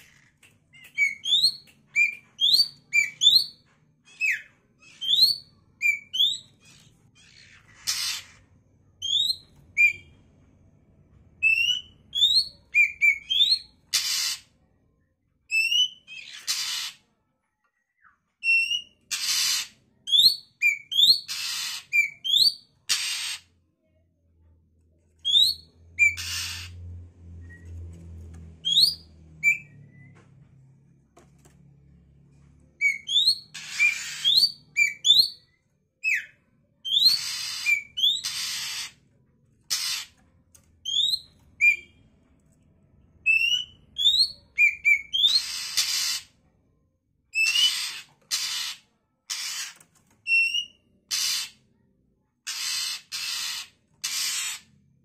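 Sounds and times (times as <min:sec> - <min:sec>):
bird harsh rasping calls: 0:04.1 - 0:10.0, 0:11.6 - 0:14.5, 0:15.7 - 0:17.0, 0:18.7 - 0:19.8, 0:20.6 - 0:23.5, 0:25.3 - 0:26.8, 0:32.8 - 0:35.3, 0:36.9 - 0:39.0, 0:39.7 - 0:40.2, 0:43.3 - 0:46.4, 0:47.4 - 0:51.6, 0:52.4 - 0:54.7.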